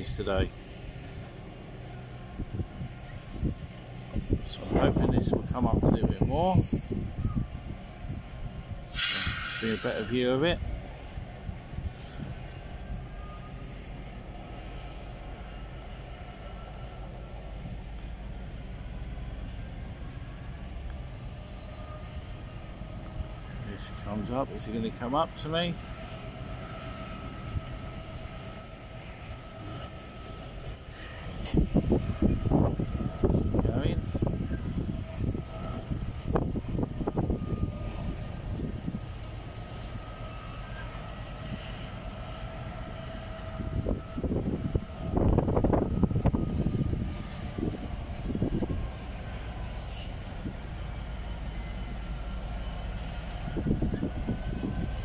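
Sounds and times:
diesel locomotive engine rumbling: 0:00.0 - 0:55.0
wind buffeting microphone: 0:02.3 - 0:09.4, 0:31.2 - 0:39.5, 0:42.5 - 0:51.0, 0:52.8 - 0:55.0.

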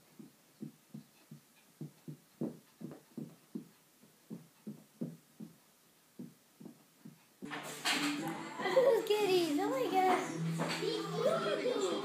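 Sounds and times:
muffled thumps on carpet: 0:00.0 - 0:07.5.

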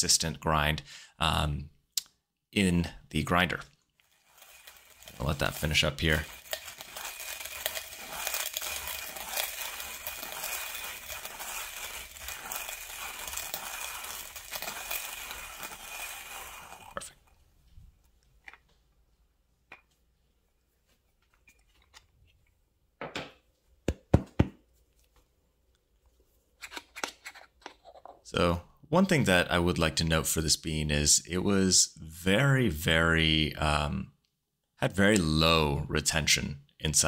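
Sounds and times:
hand coffee grinder crunching beans: 0:03.4 - 0:17.4
grinder clicks and knocks: 0:04.4 - 0:16.9.

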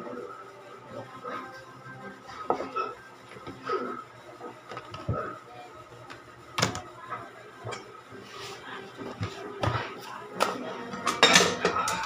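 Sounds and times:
tableware knocking and clinking: 0:11.0 - 0:12.0.

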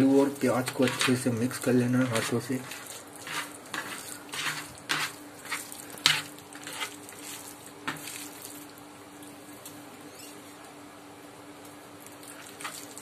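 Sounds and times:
hands squishing mashed potato: 0:00.6 - 0:08.7
taps and scrapes on plastic plate: 0:02.2 - 0:06.9.

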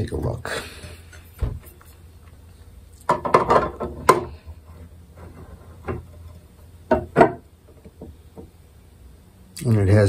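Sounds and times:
wooden knocks of guitar neck: 0:06.9 - 0:08.5.

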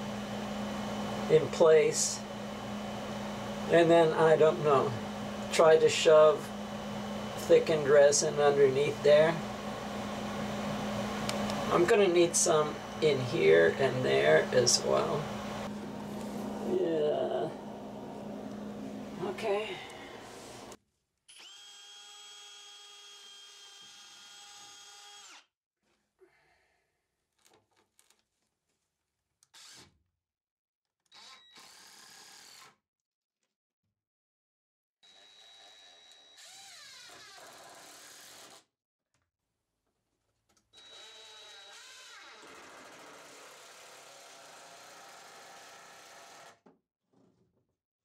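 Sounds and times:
cordless drill motor spinning: 0:21.3 - 0:25.5, 0:29.5 - 0:29.9, 0:31.1 - 0:32.8, 0:35.0 - 0:38.6, 0:40.7 - 0:46.6.

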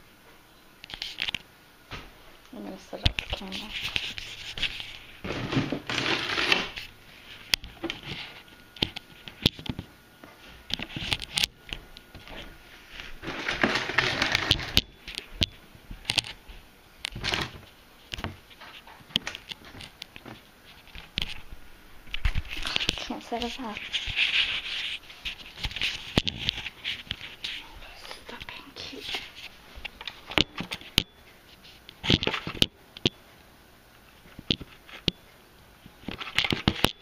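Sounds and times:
camera handling rubbing and scraping: 0:03.1 - 0:05.3, 0:22.2 - 0:27.6.

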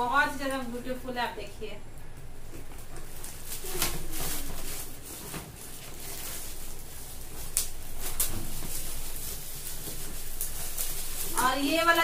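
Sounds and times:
sharp crackles: 0:00.0 - 0:12.0
gift wrap rustling and crinkling: 0:02.5 - 0:12.0.

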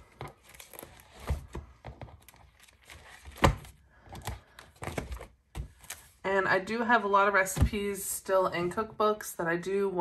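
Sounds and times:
plastic pages rustling: 0:00.0 - 0:06.2.

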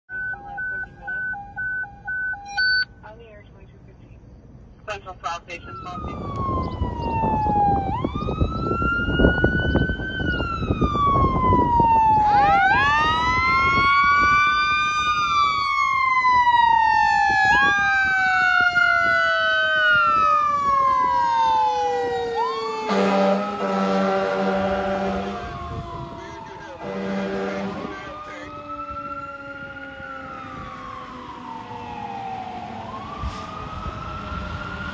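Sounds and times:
fire engine sirens wailing: 0:00.1 - 0:02.9, 0:05.3 - 0:34.9
air horn blast: 0:22.9 - 0:25.6, 0:26.7 - 0:28.5.

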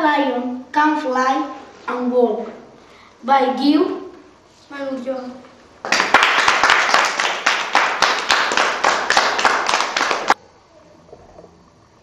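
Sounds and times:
group of people clapping: 0:05.8 - 0:10.4.

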